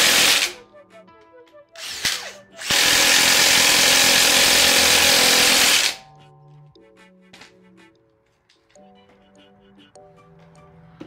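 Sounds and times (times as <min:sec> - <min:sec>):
impact wrench hammering: 0:00.0 - 0:00.6, 0:01.9 - 0:06.0
background music: 0:00.0 - 0:11.0.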